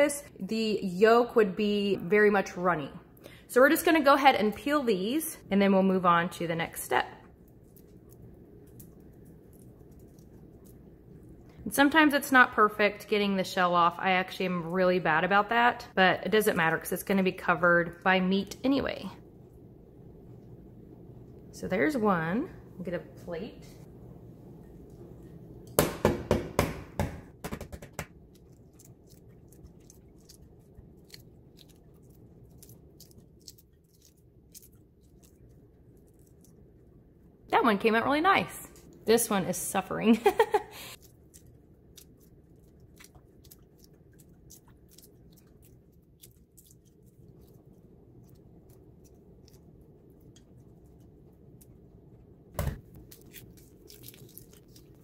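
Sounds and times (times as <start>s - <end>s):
shell crackling as peeled: 28.1s - 36.9s, 41.0s - 51.8s, 52.9s - 55.0s.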